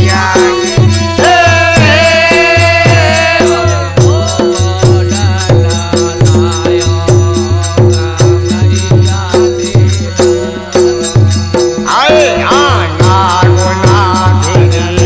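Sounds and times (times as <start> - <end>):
bright percussion: 0.0 - 15.0
dholak drum beat: 0.0 - 15.0
harmonium melody: 0.0 - 15.0.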